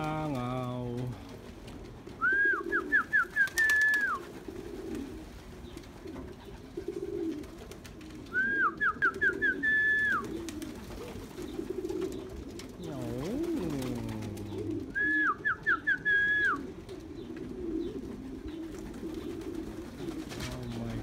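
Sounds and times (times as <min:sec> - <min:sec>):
pigeons cooing: 0:00.0 - 0:21.0
whistled phrase: 0:02.2 - 0:04.2, 0:08.3 - 0:10.3, 0:14.9 - 0:16.6.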